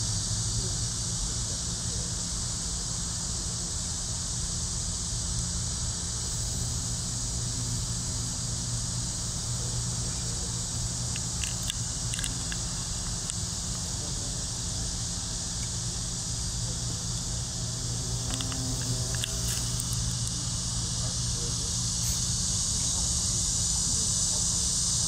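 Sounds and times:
high hiss: 0.0s - 25.0s
faint ticks: 10.9s - 13.8s, 18.1s - 20.5s.

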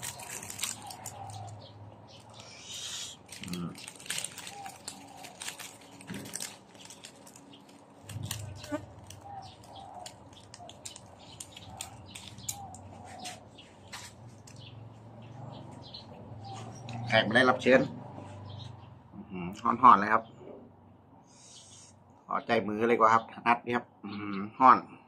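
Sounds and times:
leaf wrappings crackling and rustling: 0.0s - 14.8s.

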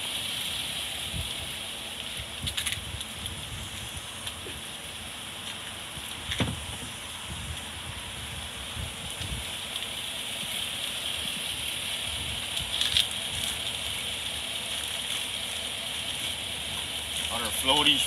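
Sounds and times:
sharp thump: 6.3s - 6.6s.

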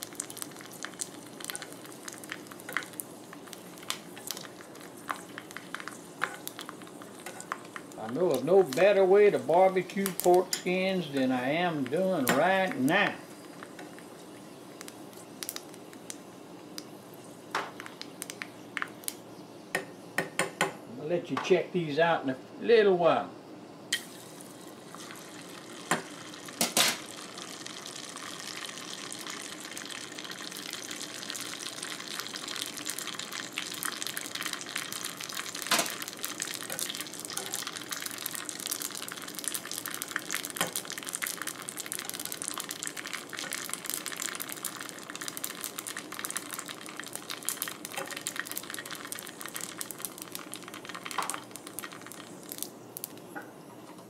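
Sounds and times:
oil crackling and sizzling: 0.0s - 20.3s, 23.9s - 54.0s.

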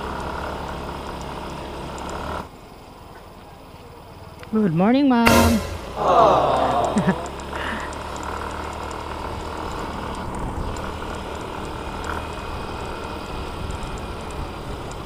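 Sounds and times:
wind and road noise: 6.6s - 15.0s.

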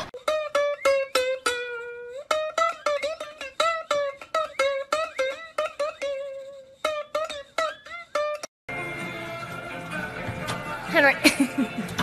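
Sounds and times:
plucked string melody: 0.0s - 9.0s.

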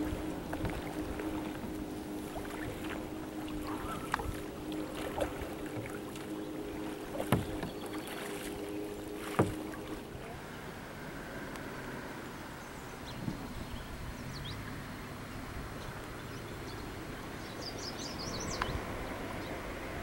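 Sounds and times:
paddle splashing in water: 0.0s - 10.4s
faint steady hum: 0.0s - 20.0s
sharp knocks: 7.1s - 7.9s, 9.2s - 10.0s.

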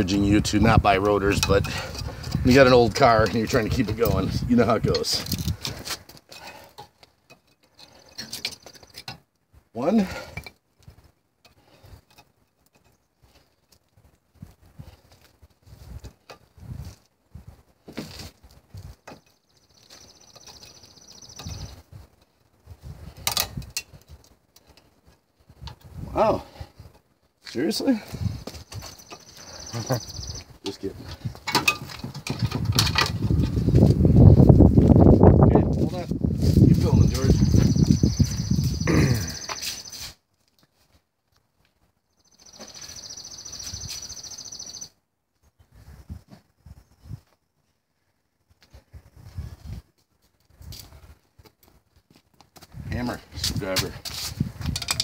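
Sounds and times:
metal parts knocking: 54.7s - 55.0s.

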